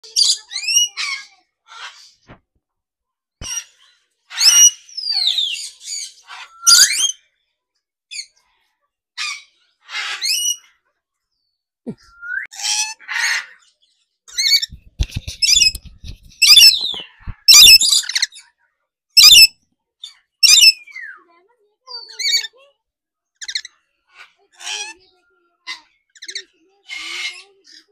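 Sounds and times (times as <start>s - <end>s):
parrots squawking and screeching: 0.2s - 2.2s, 3.4s - 7.2s, 9.2s - 10.7s, 12.5s - 13.6s, 14.4s - 18.4s, 19.2s - 19.5s, 20.4s - 21.0s, 22.0s - 22.6s, 23.4s - 25.1s, 25.7s - 27.9s.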